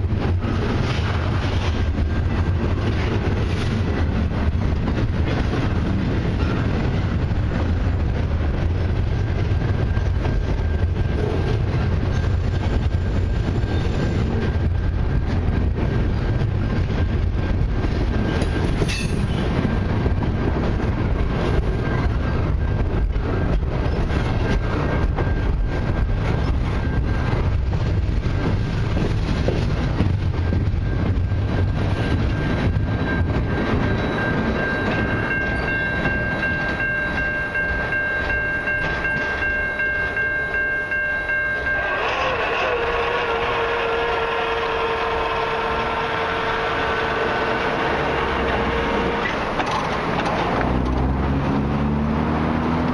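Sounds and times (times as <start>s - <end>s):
freight train rolling past: 0.0s - 52.9s
wheels clacking over rail joints: 17.5s - 52.9s
distant train horn: 41.2s - 49.6s.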